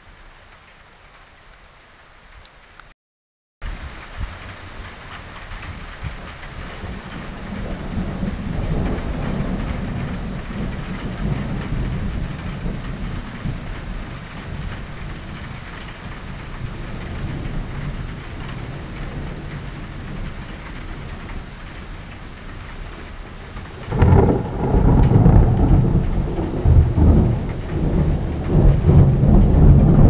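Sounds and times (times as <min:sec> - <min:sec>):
steady rain: 0:00.0 - 0:03.0, 0:03.6 - 0:30.0
thunder rumbling: 0:03.7 - 0:30.0.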